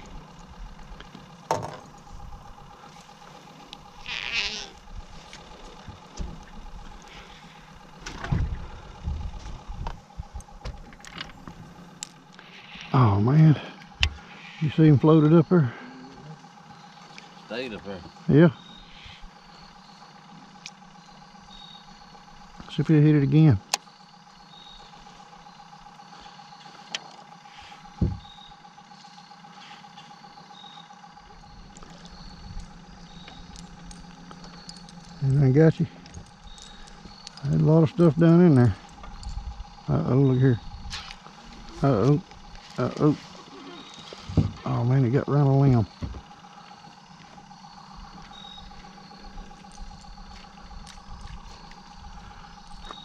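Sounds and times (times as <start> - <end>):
faint hum: 0.0 - 53.0
thin whine: 0.0 - 53.0
faint ticks: 2.8 - 8.2, 18.9 - 22.8
dull thump: 28.0 - 28.3.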